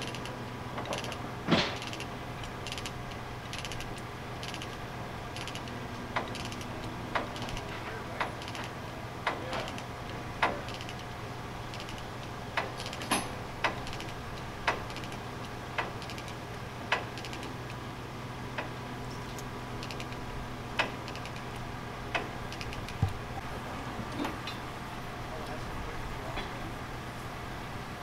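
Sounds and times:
truck idling: 0.0s - 28.0s
metallic chain clicks: 1.8s - 4.8s, 5.4s - 6.7s, 8.4s - 8.7s, 10.7s - 11.0s, 11.7s - 12.1s, 14.8s - 15.2s.

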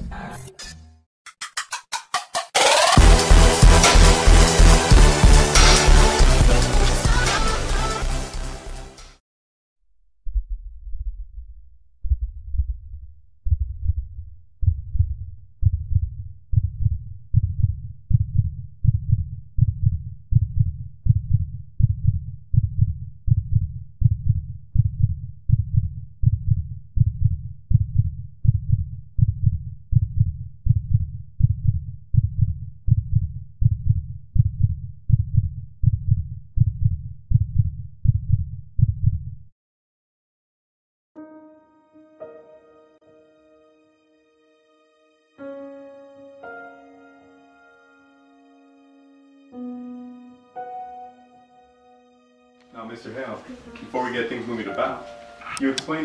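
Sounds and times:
heartbeat thumps: 10.2s - 39.4s.

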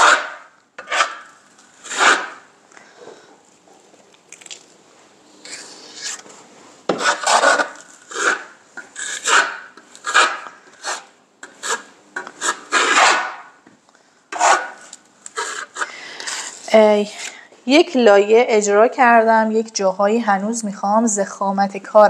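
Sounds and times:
trowel scraping plaster on wall: 0.0s - 2.5s, 5.4s - 6.3s, 6.9s - 13.6s, 14.3s - 17.4s.

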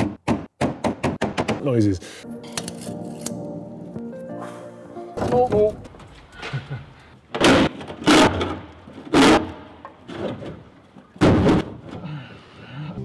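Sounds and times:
loud clunks and scrapes: 7.3s - 12.0s.

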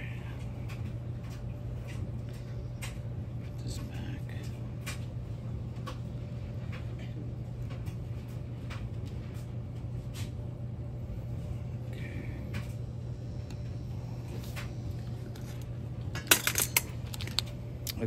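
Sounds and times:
steady low hum: 0.0s - 18.0s
small metal parts clicking: 16.2s - 17.5s.

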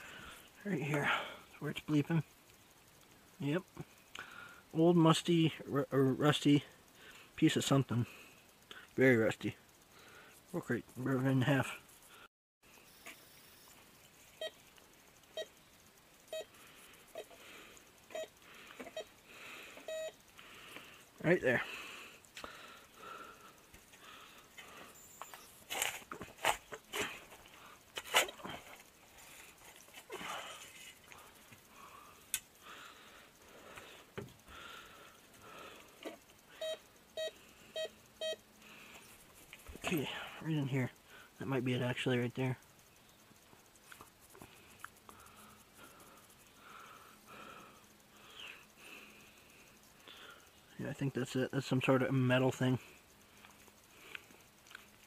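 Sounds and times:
metal detector beeping: 12.8s - 14.7s, 15.3s - 15.6s, 16.3s - 17.4s, 18.1s - 19.2s, 19.8s - 20.2s, 24.9s - 27.1s, 36.5s - 38.5s.

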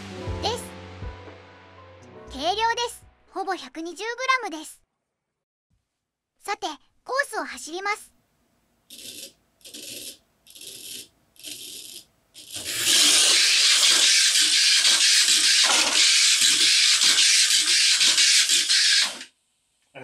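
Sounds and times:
toy car racing on plastic track: 8.9s - 19.3s.

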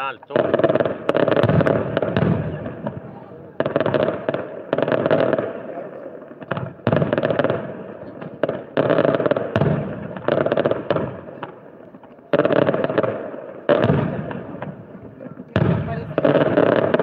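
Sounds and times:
fireworks bursting with crackling: 0.0s - 17.0s.

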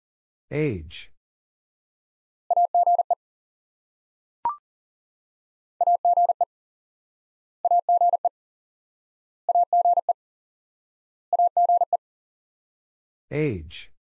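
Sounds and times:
morse code beeps: 2.5s - 3.2s, 5.8s - 6.5s, 7.7s - 8.3s, 9.5s - 10.2s, 11.4s - 12.0s.

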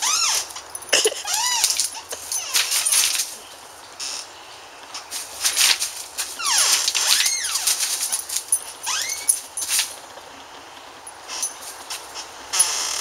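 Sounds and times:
puppy whining: 0.0s - 2.9s, 8.8s - 9.4s
puppy scrambling through leaves: 0.0s - 3.6s, 5.0s - 10.1s.

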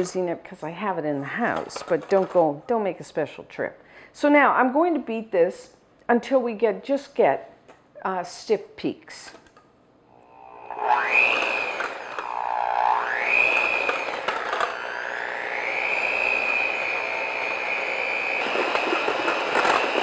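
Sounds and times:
electric hand mixer whining: 10.2s - 20.0s.

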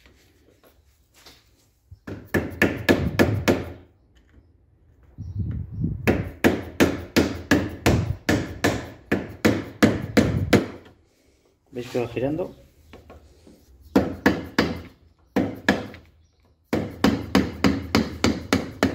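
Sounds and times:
hammer tapping metal: 6.1s - 10.9s.

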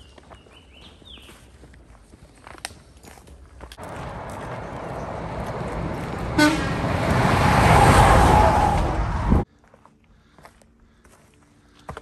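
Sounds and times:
vehicle passing at speed: 3.8s - 9.4s
car horn toot: 6.2s - 7.1s.

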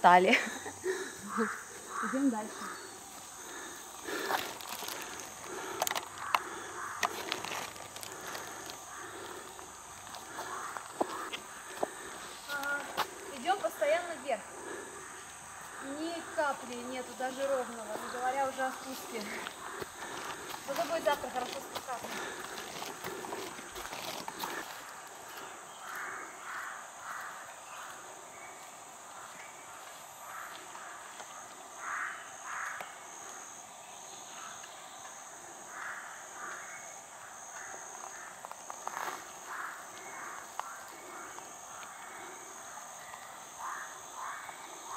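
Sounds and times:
insect drone: 0.0s - 44.9s
pulsing insect trill: 0.0s - 44.9s.

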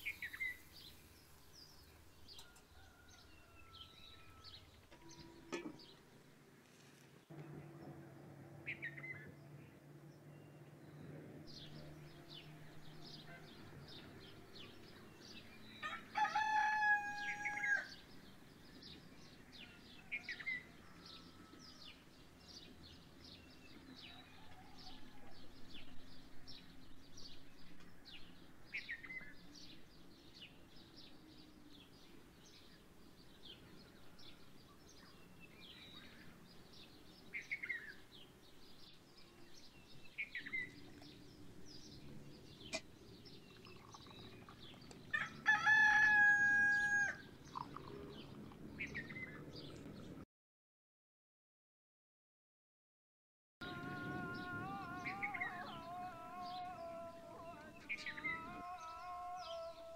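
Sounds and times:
small birds chirping: 0.0s - 3.1s, 25.5s - 46.0s, 46.8s - 50.2s
rooster crowing: 2.3s - 5.6s, 15.8s - 18.0s, 24.0s - 25.6s, 45.1s - 47.2s, 53.6s - 59.9s.

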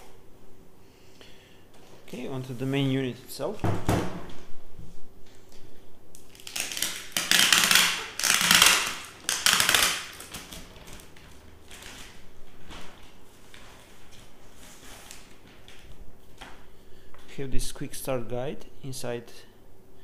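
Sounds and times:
plastic bag crinkling: 6.2s - 16.0s.

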